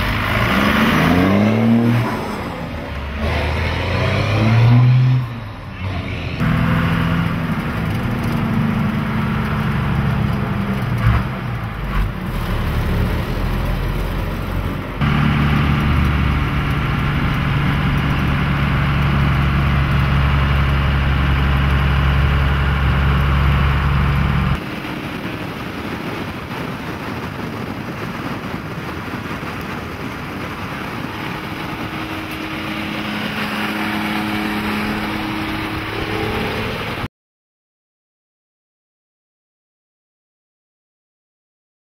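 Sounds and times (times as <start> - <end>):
road noise: 0.0 - 37.1
truck diesel engine running: 5.4 - 26.7, 30.4 - 37.1.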